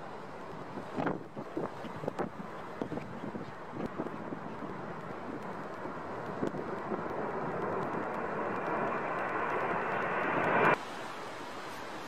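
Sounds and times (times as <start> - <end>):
wind noise: 0.0 - 10.8
jet airliner engine noise: 0.0 - 12.0.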